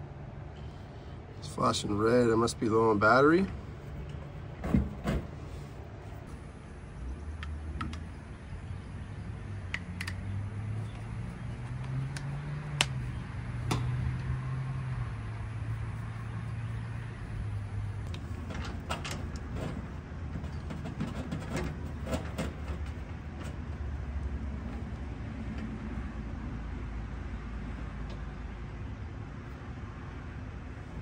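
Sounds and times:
sharp clicks and taps: 0:11.7 - 0:13.0.

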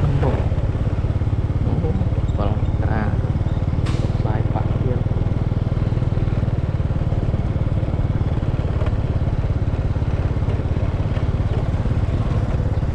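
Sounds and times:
engine running: 0:00.0 - 0:12.9.

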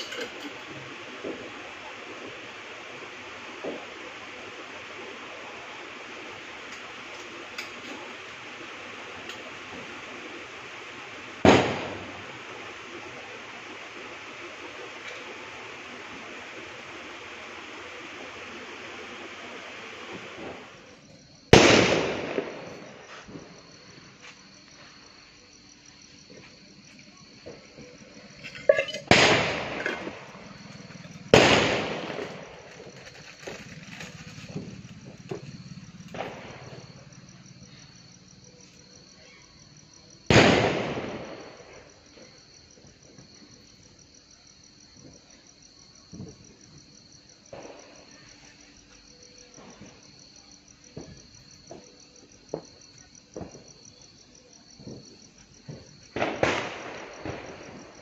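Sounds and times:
insects chirring: 0:00.0 - 0:58.0
loud sharp echoing bangs: 0:11.4 - 0:12.3, 0:21.5 - 0:23.0, 0:29.0 - 0:30.4, 0:31.1 - 0:32.7, 0:40.3 - 0:41.5.

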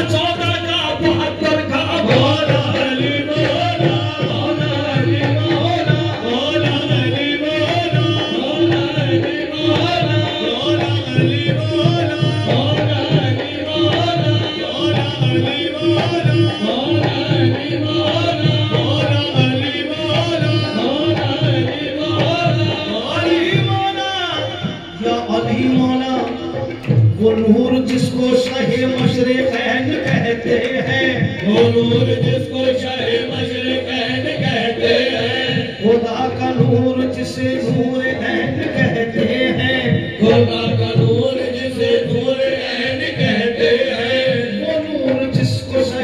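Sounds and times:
tabla drumming: 0:00.0 - 0:46.0.

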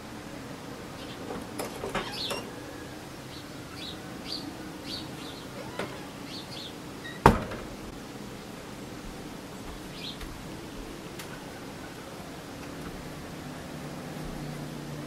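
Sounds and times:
small birds chirping: 0:00.9 - 0:01.4, 0:02.0 - 0:07.2, 0:09.5 - 0:12.3.

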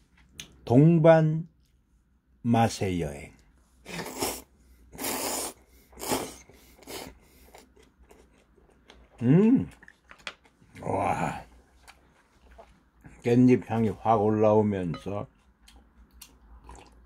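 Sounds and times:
wet chewing: 0:06.8 - 0:10.9, 0:15.4 - 0:17.0.

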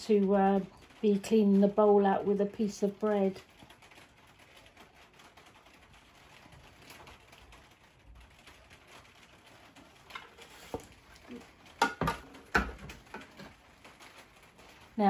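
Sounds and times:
steel bowl knocking: 0:11.8 - 0:13.3
kitchen handling sounds: 0:11.8 - 0:13.5.

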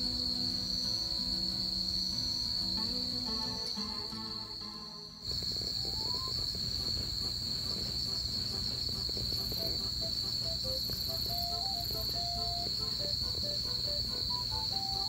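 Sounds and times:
soft melody of single notes: 0:00.0 - 0:06.5, 0:10.6 - 0:15.0
crickets chirping: 0:00.0 - 0:15.0.

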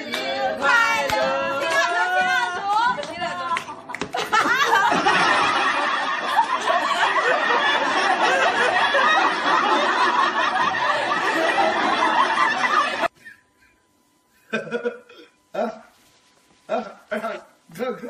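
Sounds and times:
people laughing loudly together: 0:04.0 - 0:13.1.

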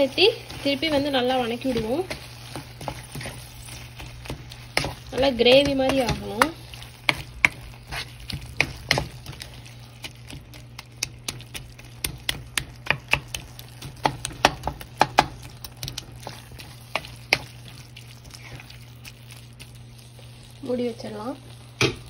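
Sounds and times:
wooden spatula scraping a pan: 0:00.0 - 0:10.6, 0:16.0 - 0:21.3
steady low hum: 0:00.0 - 0:22.0.

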